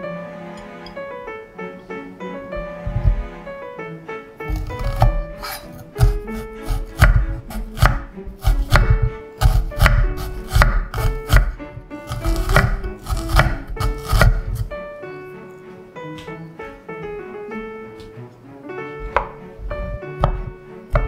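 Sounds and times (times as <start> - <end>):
knife slicing onion on board: 4.5 - 14.8, 19.0 - 21.0.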